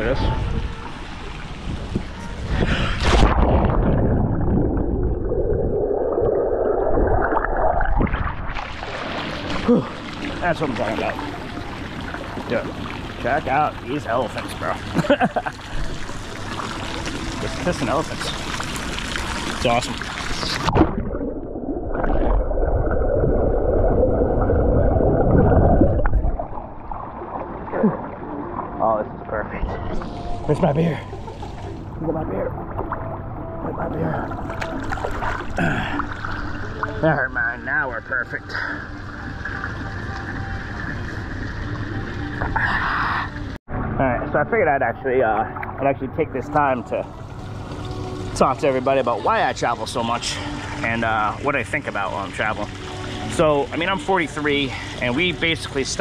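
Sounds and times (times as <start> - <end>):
underwater rushing bubbles: 0.8 - 30.5
splash into pool: 2.8 - 5.0.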